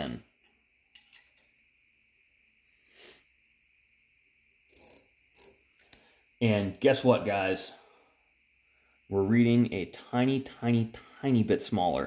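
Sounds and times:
faint high-pitched whine: 0:00.0 - 0:12.0.

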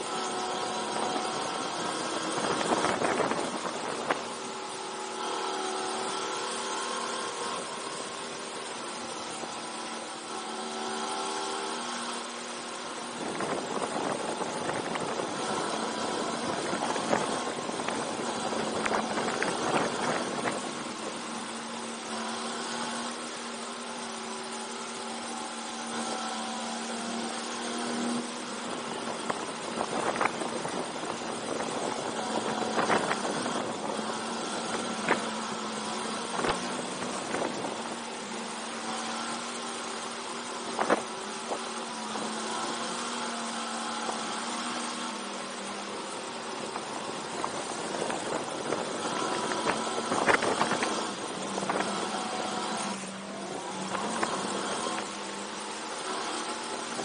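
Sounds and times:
go-kart engine running: 0:00.0 - 0:57.0.

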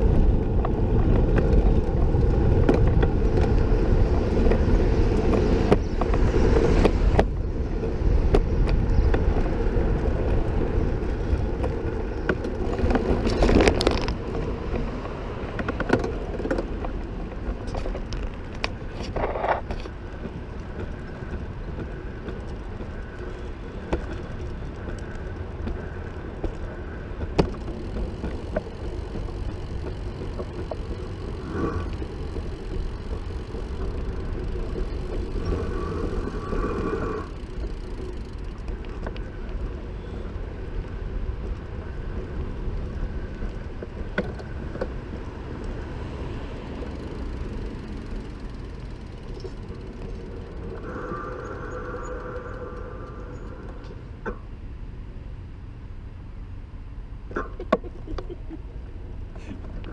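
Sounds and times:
wind rush: 0:00.0 - 0:15.6, 0:49.8 - 0:54.2
rolling road noise: 0:00.0 - 0:59.9
sharp knocks over bumps: 0:23.8 - 0:31.4.

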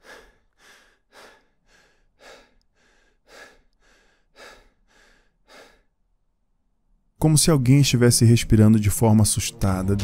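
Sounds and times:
person breathing fast: 0:00.0 - 0:06.0.

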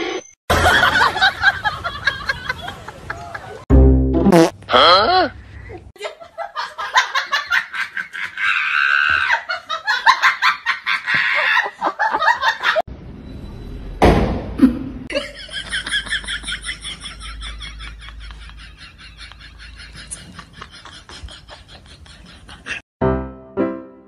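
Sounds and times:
hearty laughter: 0:05.6 - 0:12.8, 0:15.1 - 0:22.8
loud thump: 0:14.0 - 0:14.6.

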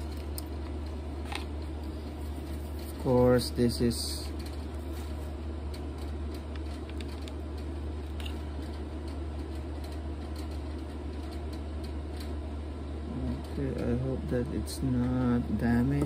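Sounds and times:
steady low hum: 0:00.0 - 0:16.0
soft handling rustle: 0:01.3 - 0:03.2.

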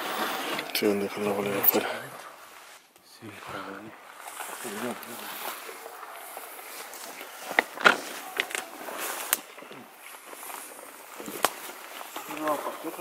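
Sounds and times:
footsteps through dry grass: 0:04.0 - 0:13.0
twigs snapping underfoot: 0:04.2 - 0:12.6.

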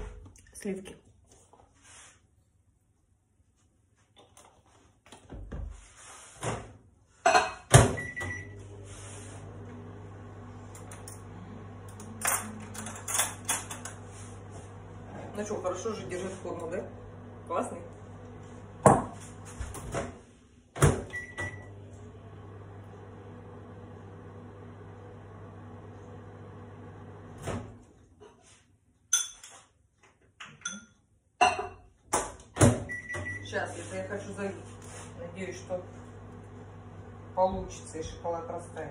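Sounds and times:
microwave humming: 0:07.7 - 0:28.0, 0:32.6 - 0:38.9
cutlery clattering in a drawer: 0:12.2 - 0:13.9.

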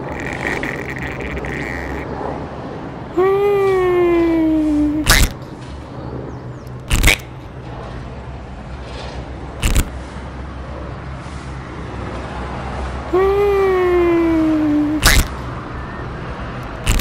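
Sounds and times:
cartoon swishes: 0:04.7 - 0:05.4, 0:06.9 - 0:07.3, 0:09.6 - 0:09.9, 0:14.4 - 0:15.4, 0:16.8 - 0:17.0.

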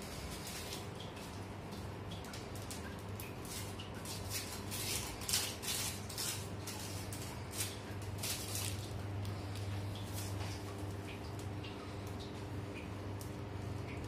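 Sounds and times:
steady low hum: 0:00.0 - 0:14.0
piping bag rustling: 0:02.4 - 0:11.0.

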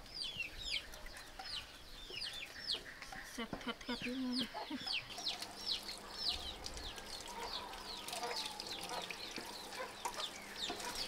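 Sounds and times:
chicks peeping: 0:00.1 - 0:11.0
tap water running: 0:05.1 - 0:11.0.

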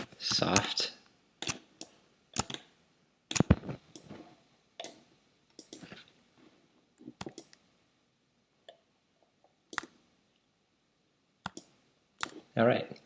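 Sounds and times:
computer mouse clicks: 0:01.4 - 0:02.7, 0:03.3 - 0:04.1, 0:04.8 - 0:06.0, 0:07.0 - 0:07.6, 0:09.7 - 0:10.0, 0:11.4 - 0:12.4
keyboard clicks: 0:01.4 - 0:02.7, 0:03.3 - 0:04.1, 0:05.6 - 0:05.9, 0:07.2 - 0:07.6, 0:09.7 - 0:10.0, 0:11.4 - 0:12.4.

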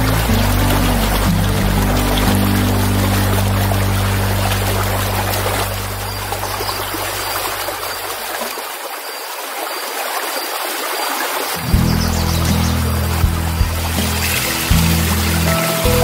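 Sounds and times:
low background music: 0:00.0 - 0:07.3, 0:11.6 - 0:16.0
stream water running: 0:00.0 - 0:16.0.

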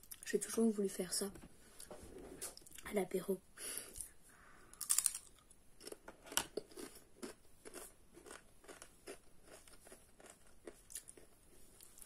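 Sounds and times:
chewing crunches: 0:04.8 - 0:12.0.

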